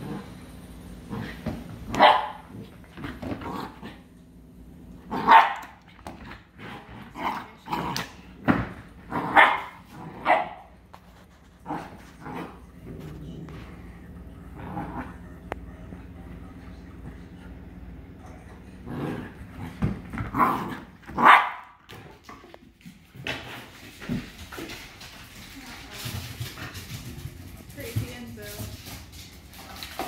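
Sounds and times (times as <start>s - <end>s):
puppy growling: 0.0s - 4.2s, 4.9s - 21.3s
puppy barking: 1.9s - 2.5s, 5.2s - 5.8s, 9.3s - 10.8s, 21.2s - 21.8s.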